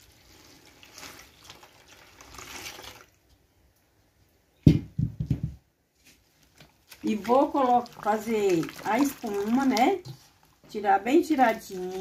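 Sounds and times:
water pouring into a steel bowl: 0.0s - 3.2s, 6.9s - 10.5s.

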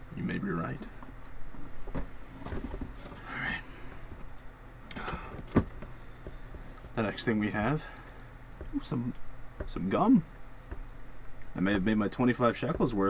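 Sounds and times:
knocks and rustling of items: 0.6s - 7.3s, 8.1s - 13.0s.

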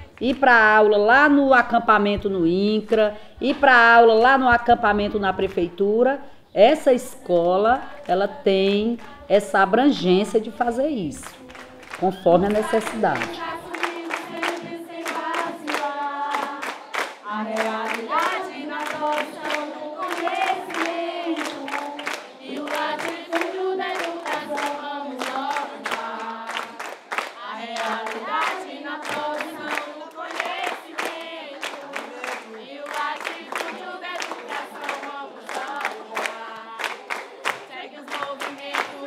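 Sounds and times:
young voices singing together: 6.9s - 39.0s
hand claps: 11.1s - 39.0s.

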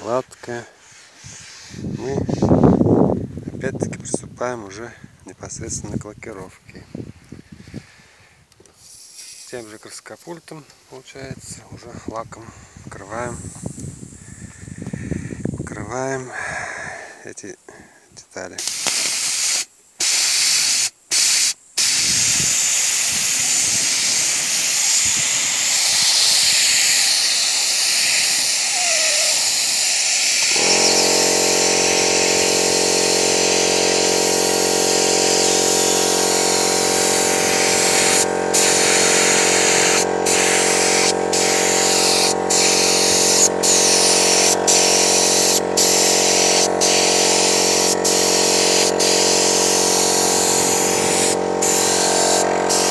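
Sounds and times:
paint spray gun hissing: 8.6s - 9.8s, 18.6s - 52.9s
motor humming: 30.5s - 52.9s.

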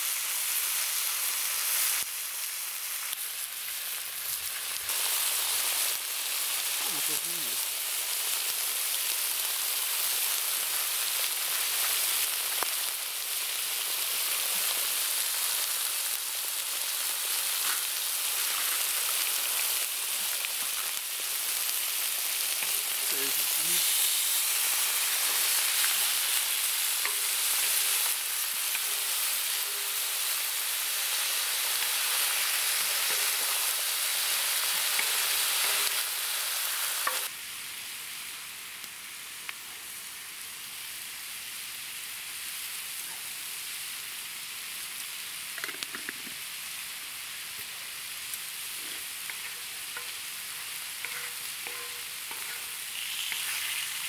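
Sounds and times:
meat sizzling in a pan: 0.0s - 54.0s.

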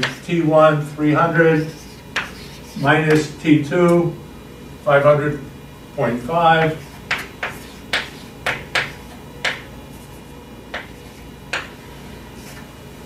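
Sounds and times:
chalk tapping on blackboard: 1.6s - 3.3s, 6.6s - 9.7s, 10.7s - 11.8s.

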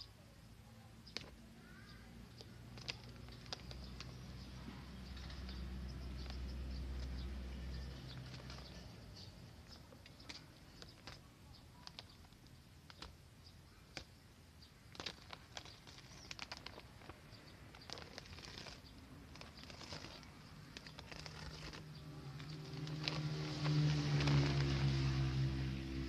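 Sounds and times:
plastic sack rustling: 14.9s - 25.6s.

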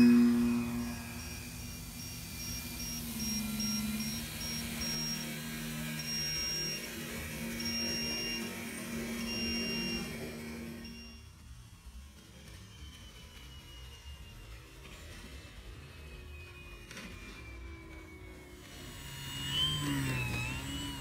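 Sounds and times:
held low synth note: 0.0s - 6.2s
high synth tone beeping: 0.0s - 11.2s.

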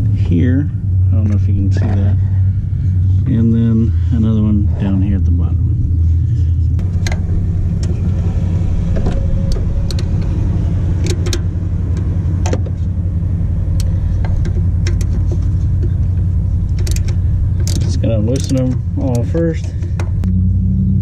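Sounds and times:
loud steady low hum: 0.0s - 21.0s
ratchet clicking: 16.6s - 19.3s.

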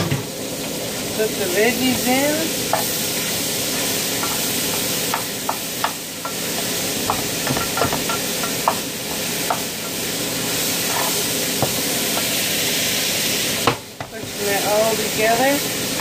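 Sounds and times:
food sizzling in a skillet: 0.2s - 16.0s
spoon scraping a pan: 2.7s - 12.4s.

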